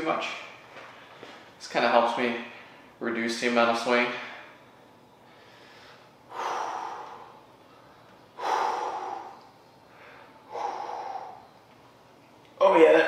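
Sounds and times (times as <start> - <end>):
man breathing heavily: 4.1 - 11.8.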